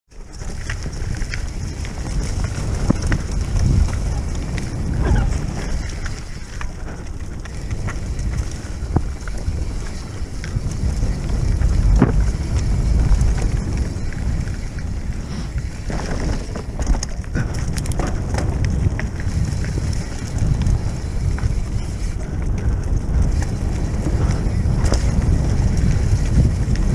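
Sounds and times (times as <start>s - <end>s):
bike knocking and rattling: 0.1s - 26.9s
tyres rumbling over dirt: 0.1s - 26.9s
wind buffeting microphone: 0.1s - 26.9s.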